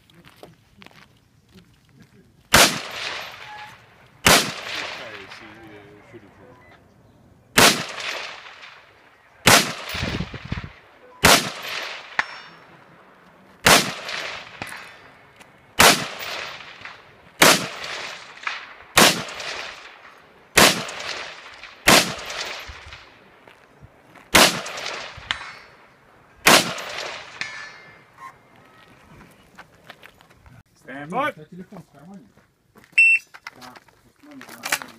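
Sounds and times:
rifle shots echoing: 2.5 - 6.4, 7.5 - 23.5, 24.3 - 28.1.

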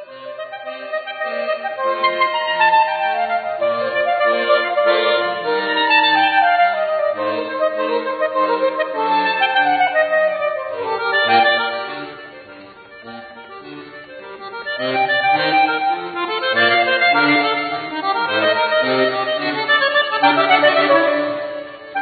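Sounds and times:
button accordion playing chords: 0.0 - 22.0.

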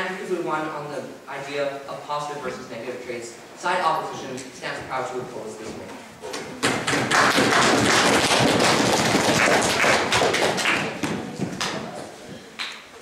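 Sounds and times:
audience applause: 6.9 - 11.8.

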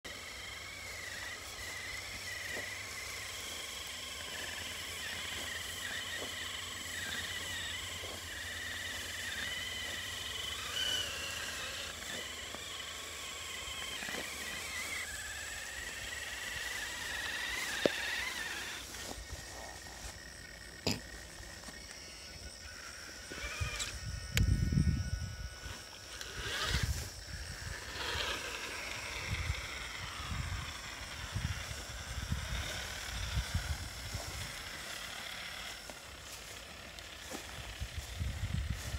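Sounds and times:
electric motor whining: 0.0 - 38.9.

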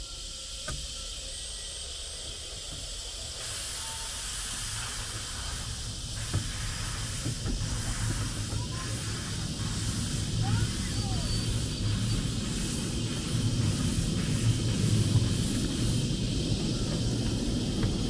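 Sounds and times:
steam hissing: 0.0 - 18.0.

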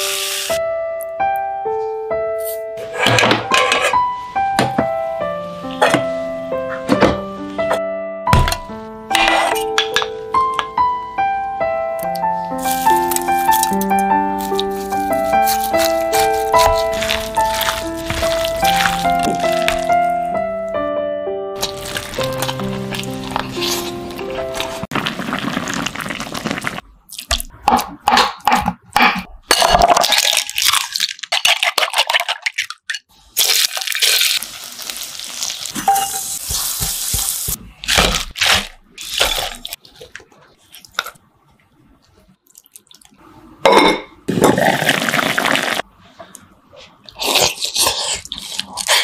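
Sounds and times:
food sizzling in oil: 0.0 - 0.6, 33.4 - 37.6
spatula stirring: 14.4 - 20.1, 21.6 - 25.0, 35.7 - 41.2
utensils knocking on pots: 35.8 - 37.6.

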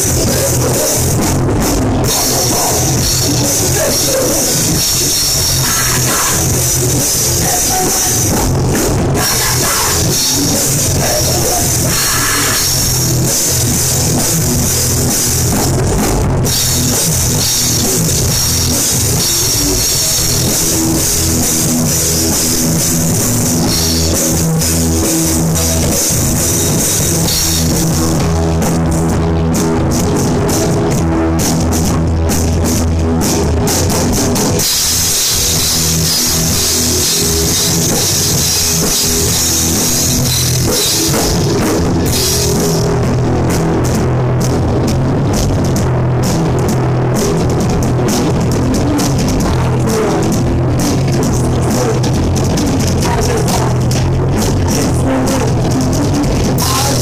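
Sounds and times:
bass guitar: 0.0 - 57.0
distorted electric guitars: 0.0 - 57.0
drum kit with crashing cymbals: 0.0 - 57.0.

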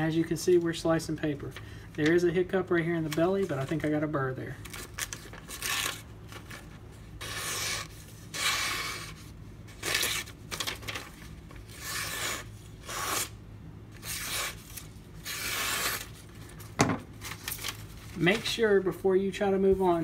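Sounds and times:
knife slicing through paper: 7.2 - 9.2, 11.7 - 13.4, 14.0 - 16.2.

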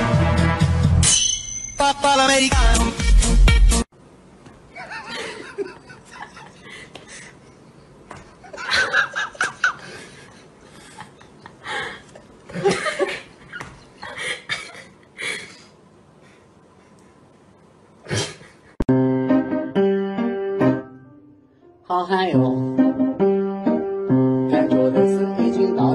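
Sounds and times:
people laughing: 4.7 - 15.1.

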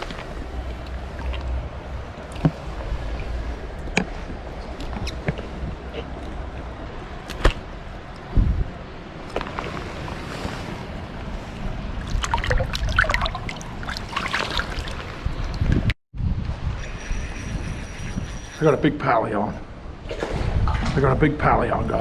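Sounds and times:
water splashing and trickling: 0.0 - 7.2, 9.2 - 16.0.

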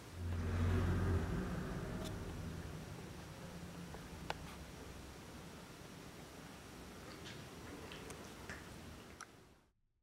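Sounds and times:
faint low hum: 0.0 - 9.7.

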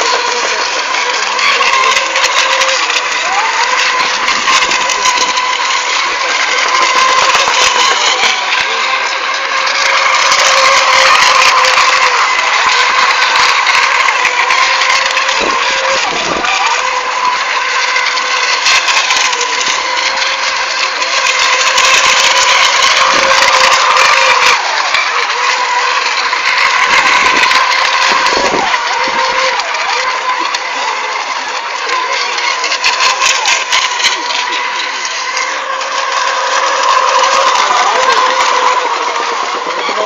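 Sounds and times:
racing boat motors droning: 0.0 - 40.0.

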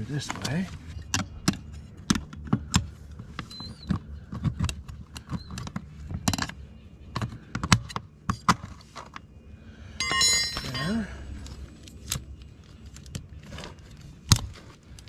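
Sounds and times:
metal buckle clicking and clinking: 10.0 - 11.0.

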